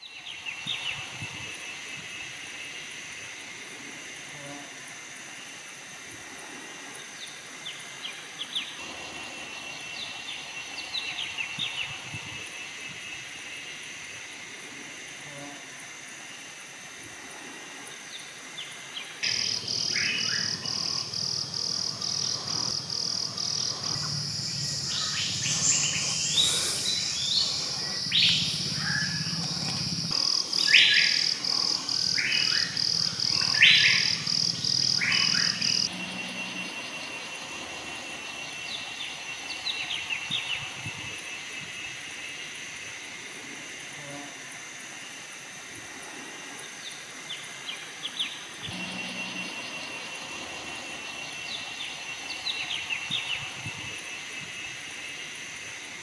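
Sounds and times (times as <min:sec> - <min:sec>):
insect buzzing in pulses: 0:00.1 - 0:56.0
birds chirping: 0:18.0 - 0:42.0, 0:47.7 - 0:54.7.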